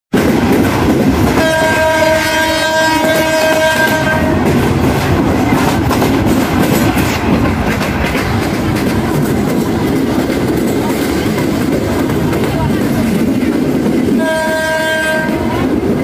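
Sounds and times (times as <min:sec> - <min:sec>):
train wheels clattering on rails: 0:00.1 - 0:16.0
train horn blast: 0:01.3 - 0:04.6, 0:14.2 - 0:15.8.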